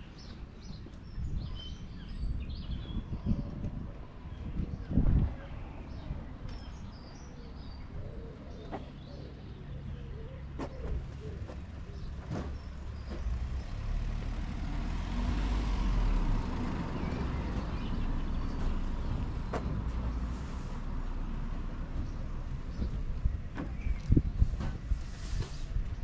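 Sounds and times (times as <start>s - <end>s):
vehicle engine passing: 10.4s - 22.8s.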